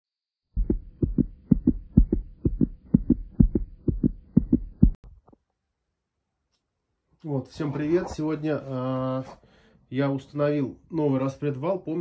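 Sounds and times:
heartbeat thumps: 0.5s - 5.0s.

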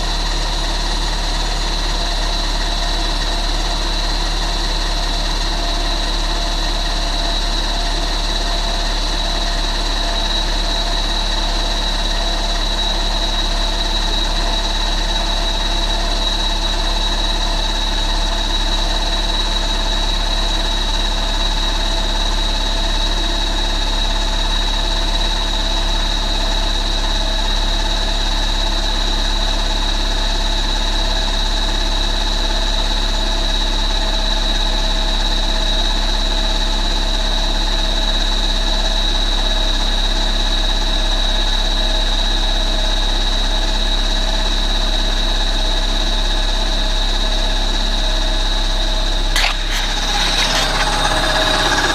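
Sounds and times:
car engine idling: 49.4s - 51.9s.

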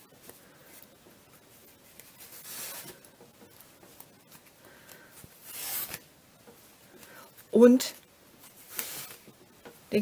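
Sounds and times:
yarn rubbing and swishing: 0.1s - 4.5s.

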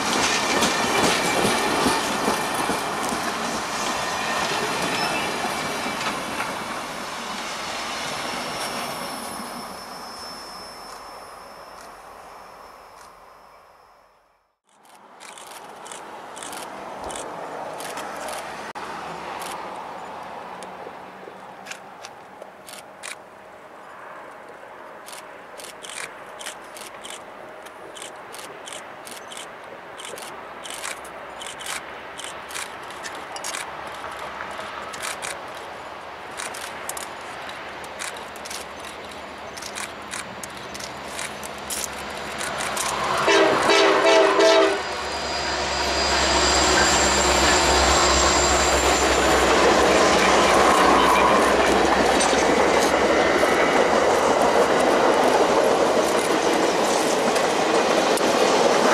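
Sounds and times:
high wheel squeal: 4.0s - 6.2s, 8.3s - 13.9s, 44.2s - 52.4s
locomotive horn chord: 43.2s - 49.3s.

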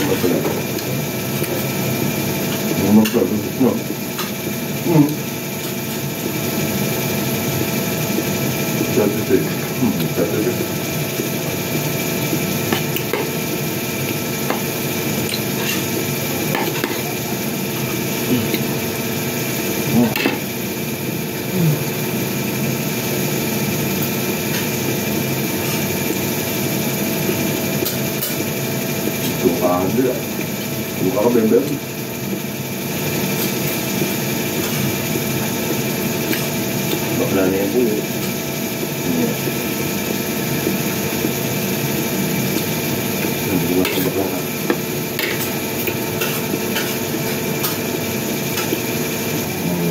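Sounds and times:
steady machine hum: 0.0s - 49.9s
steady mechanical drone: 0.0s - 49.9s.

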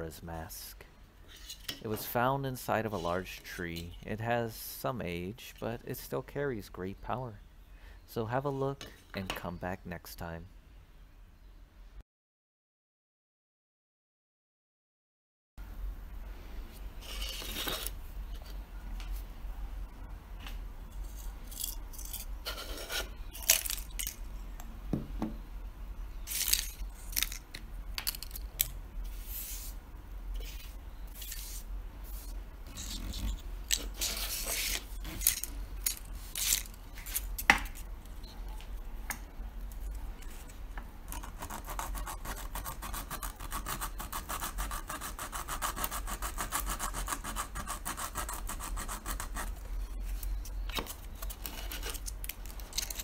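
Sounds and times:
plastic mask being sanded and scraped: 30.4s - 35.2s, 41.1s - 50.5s, 51.2s - 52.2s.

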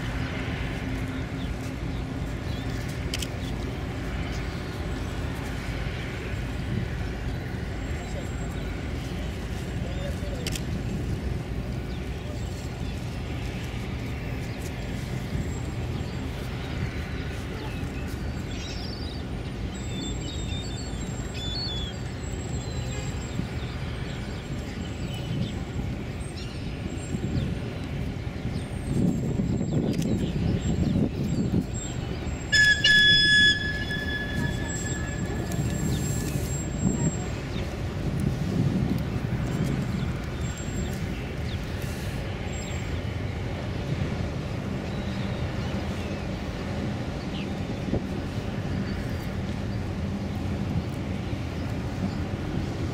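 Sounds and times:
ship engines rumbling: 19.2s - 52.9s
gulls calling: 32.2s - 37.8s.

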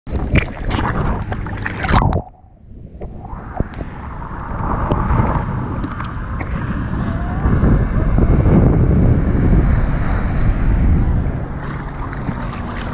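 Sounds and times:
water splashing and sloshing: 0.1s - 6.6s, 11.4s - 12.9s
wind on microphone: 0.1s - 12.9s
surf rushing: 3.3s - 12.9s.

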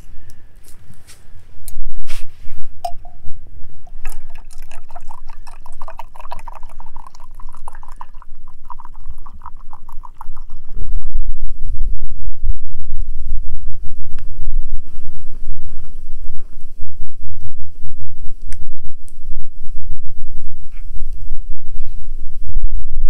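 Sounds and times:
wind rumble on microphone: 0.0s - 23.0s
liquid pouring into a vessel: 3.9s - 10.8s.

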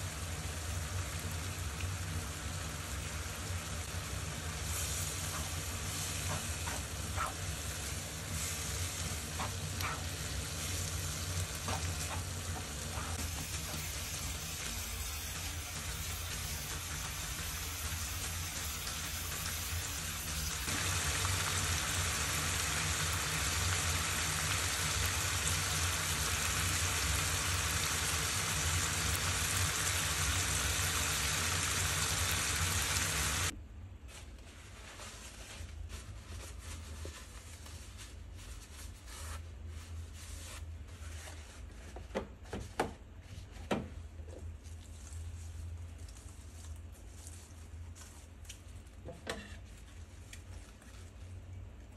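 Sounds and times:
steady hiss: 1.8s - 33.5s.

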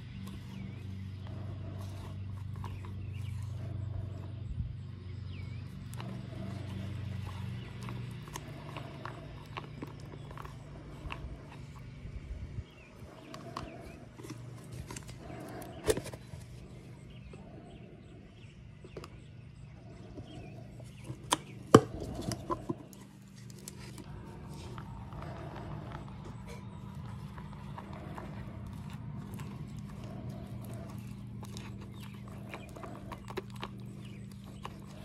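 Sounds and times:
stir stick scraping plastic cup: 20.1s - 35.0s.

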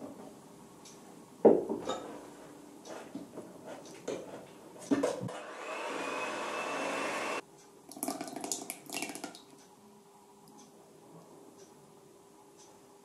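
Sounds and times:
electric hand mixer whining: 5.3s - 7.4s
liquid pouring into batter: 7.9s - 9.5s.

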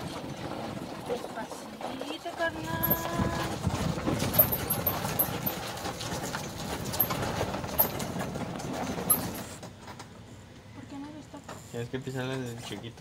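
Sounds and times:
golf cart rattling over cobblestones: 0.0s - 10.2s.

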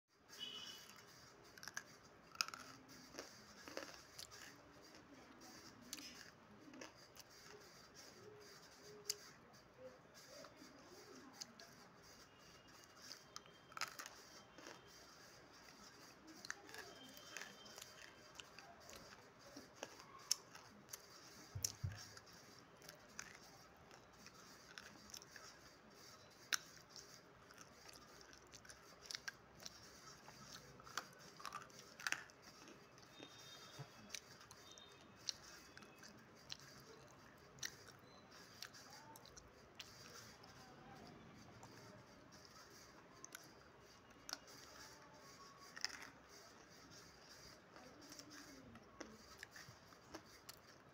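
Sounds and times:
clay being chewed with crunches: 1.5s - 5.1s, 5.9s - 7.3s, 12.8s - 14.9s, 16.4s - 22.2s, 22.8s - 25.5s, 26.2s - 40.2s, 45.6s - 46.2s, 47.7s - 50.9s.

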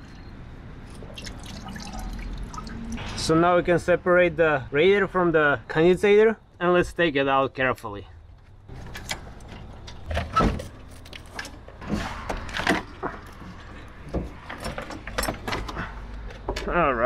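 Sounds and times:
radiator clunking and scraping: 8.4s - 16.7s.

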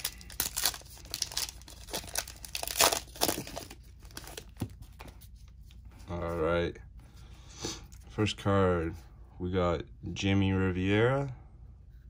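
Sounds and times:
wrapper tearing and crinkling: 0.0s - 4.4s.

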